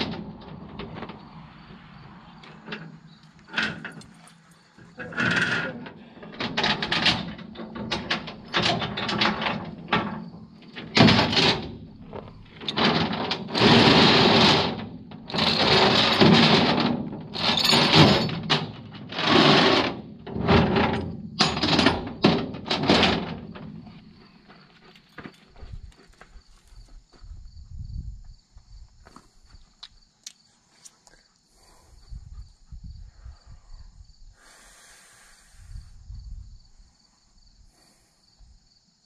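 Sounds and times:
chain rattling on metal deck: 0:00.0 - 0:26.8.

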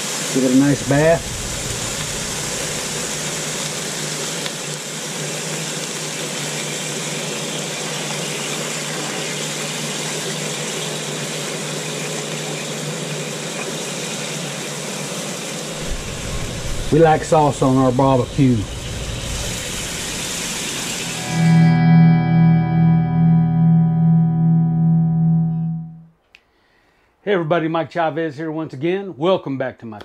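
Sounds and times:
chicken sizzling on charcoal grill: 0:00.0 - 0:21.2.

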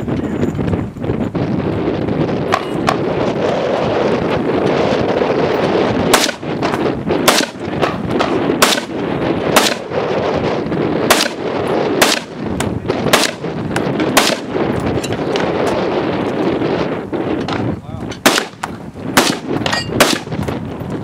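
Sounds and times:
steady background rush: 0:00.0 - 0:21.0
rifle shots: 0:06.0 - 0:10.0, 0:11.0 - 0:14.6, 0:18.2 - 0:20.4.

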